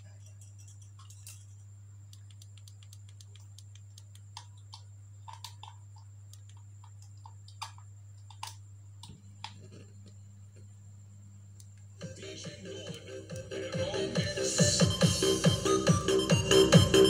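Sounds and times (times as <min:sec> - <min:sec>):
amplifier mains hum: 0:00.0 - 0:17.0
sharp clicks and crackles: 0:00.1 - 0:10.2.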